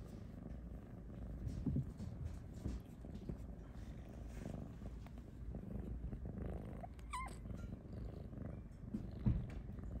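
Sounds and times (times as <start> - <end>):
cat purring: 0.0 - 10.0.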